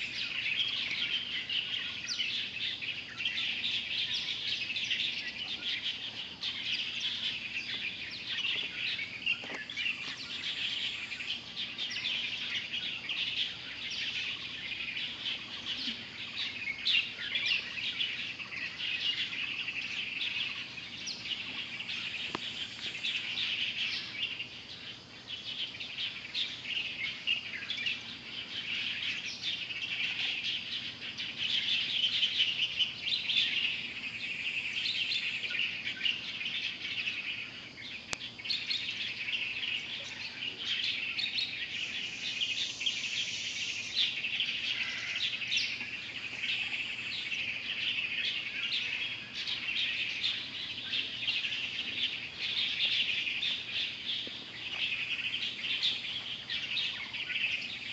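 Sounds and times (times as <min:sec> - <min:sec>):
small birds chirping: 0:00.0 - 0:57.9.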